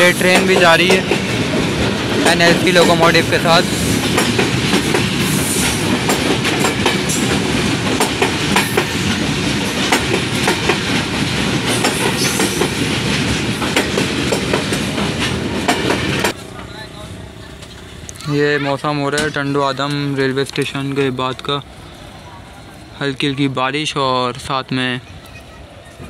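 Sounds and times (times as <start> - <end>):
wheels clicking over rail joints: 0.0 - 3.2, 4.0 - 16.8
train wagons rumbling past: 0.0 - 18.1.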